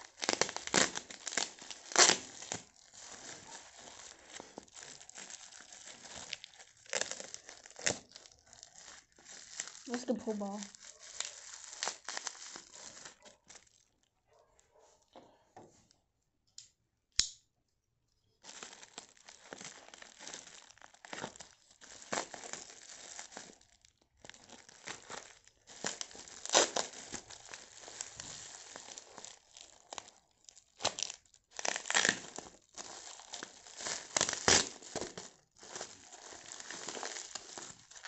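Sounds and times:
plastic packaging crinkling: 0:00.0 - 0:14.1, 0:18.4 - 0:38.0
sharp click: 0:16.6 - 0:17.4.

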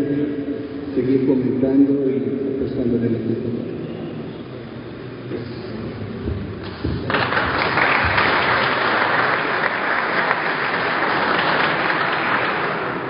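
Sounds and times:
audience clapping: 0:06.6 - 0:13.0.

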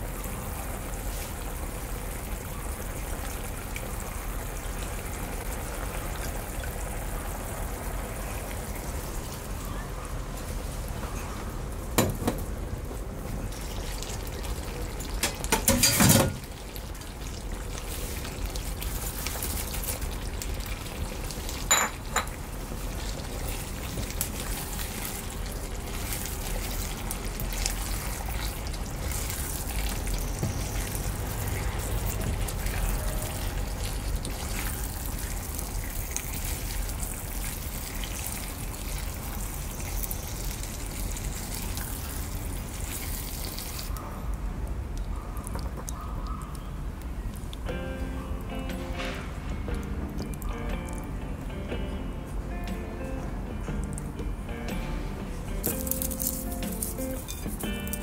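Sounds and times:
food sizzling in a pan: 0:13.5 - 0:43.9, 0:55.5 - 0:58.0.

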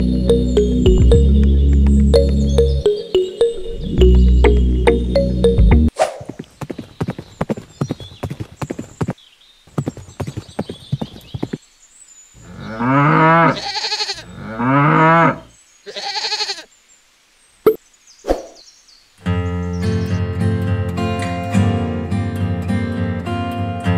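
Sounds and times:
cow mooing: 0:12.6 - 0:15.4.

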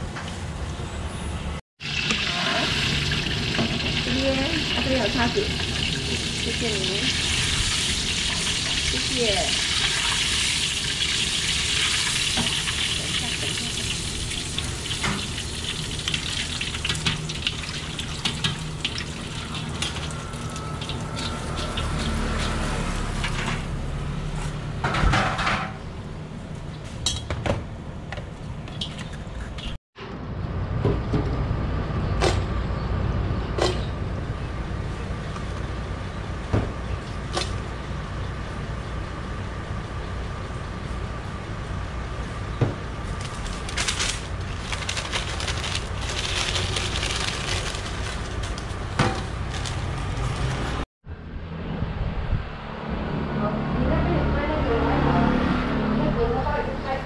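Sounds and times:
fish deep-frying in oil: 0:01.8 - 0:23.8.

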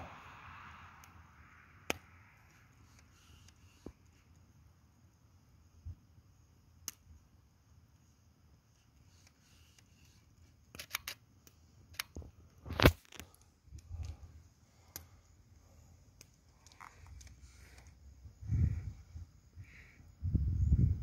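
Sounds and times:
sharp pops of fire: 0:00.0 - 0:04.4, 0:06.8 - 0:07.2, 0:10.0 - 0:14.2
campfire crackling: 0:00.1 - 0:19.9
wood fire crackles: 0:09.1 - 0:18.2.

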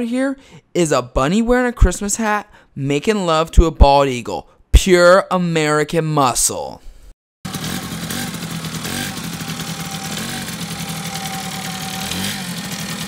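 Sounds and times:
engine throttle blips: 0:07.5 - 0:13.0
small engine idling: 0:07.5 - 0:13.0.

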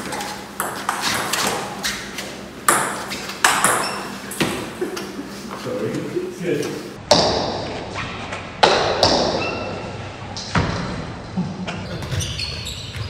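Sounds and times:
table tennis ball knocking: 0:00.6 - 0:01.7, 0:02.7 - 0:04.7.

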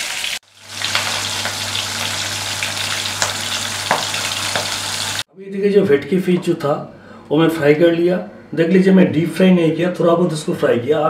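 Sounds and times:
fish sizzling in oil: 0:00.0 - 0:05.3.

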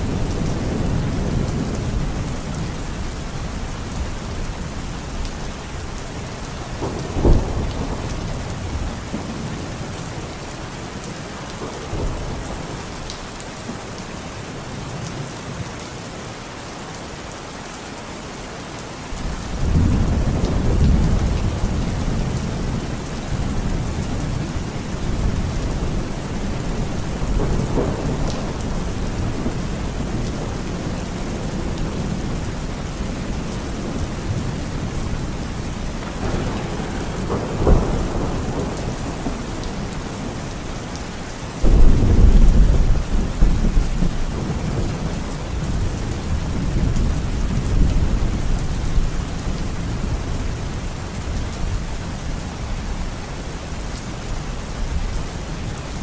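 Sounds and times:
heavy rain: 0:00.0 - 0:56.0
low thunder rumble: 0:19.5 - 0:40.6, 0:41.6 - 0:49.1
thunder clap: 0:36.0 - 0:40.3, 0:41.6 - 0:45.1.

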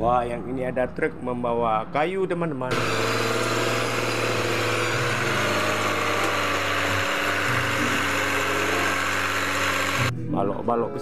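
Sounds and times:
diesel truck engine at low revs: 0:02.7 - 0:10.1.

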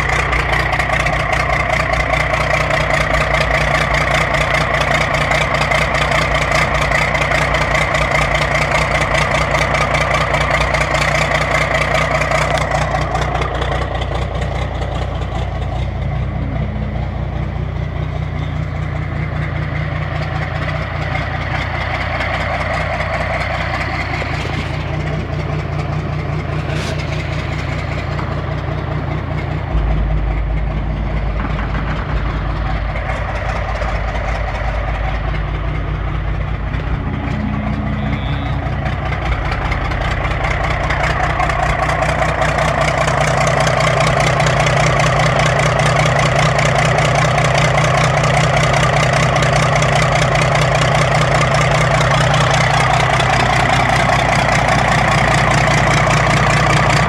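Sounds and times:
diesel engine idling: 0:00.0 - 0:57.0
heavier low rumble: 0:12.2 - 0:57.0.

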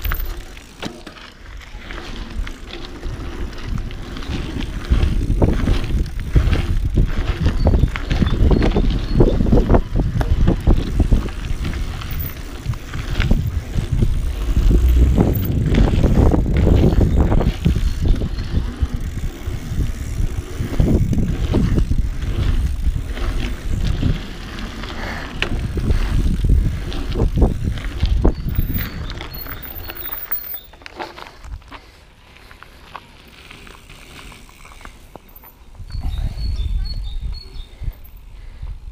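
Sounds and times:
bike knocks and rattles: 0:00.0 - 0:24.4
rumble of tyres and air: 0:00.0 - 0:38.9.

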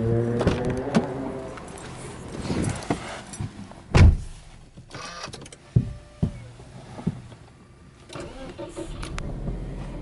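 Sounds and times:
engine starter cranking: 0:08.1 - 0:09.3.

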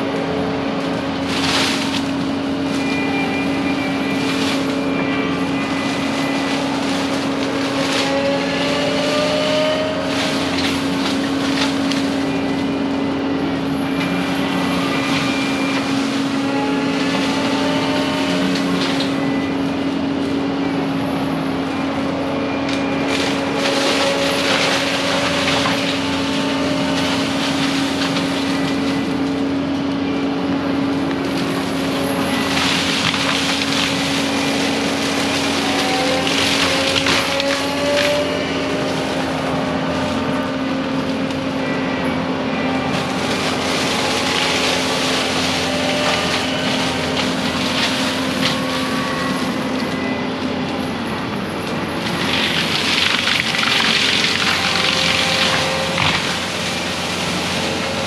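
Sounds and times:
forestry mulcher droning: 0:00.0 - 0:58.0
mulcher drum grinding brush: 0:21.4 - 0:58.0.

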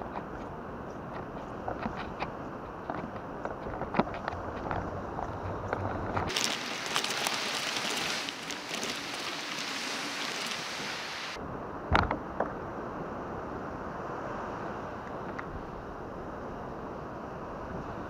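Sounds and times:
cart wheels rolling over sand: 0:00.0 - 0:11.4
wind and surf hiss: 0:00.0 - 0:18.0
kayak rattling: 0:01.1 - 0:11.0.

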